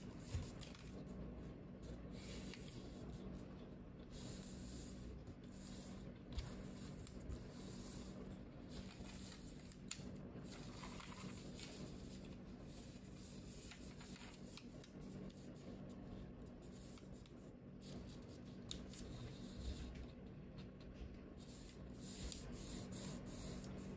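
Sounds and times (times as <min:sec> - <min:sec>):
steady low hum: 0:00.0 - 0:23.9
paper rustling and crinkling: 0:00.1 - 0:01.1, 0:08.6 - 0:15.4.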